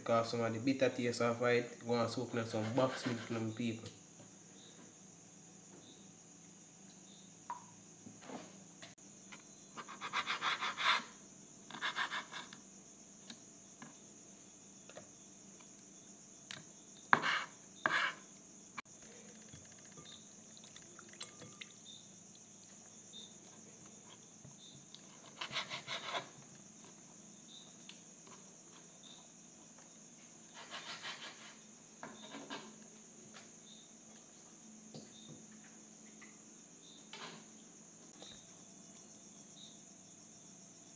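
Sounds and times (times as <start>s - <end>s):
knife scraping on cutting board: 2.5s - 3.4s, 17.1s - 18.3s, 30.5s - 32.8s.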